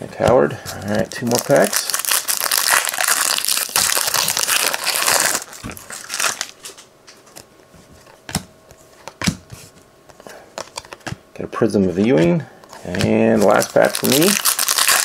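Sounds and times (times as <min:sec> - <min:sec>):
foil wrapper crinkling and tearing: 0:00.8 - 0:06.8, 0:13.3 - 0:15.0.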